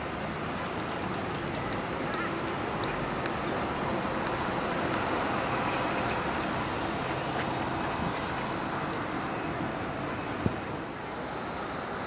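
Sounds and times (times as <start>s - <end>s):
street traffic hum: 0.0s - 12.0s
tram rolling: 0.0s - 12.0s
faint high whine: 8.5s - 12.0s.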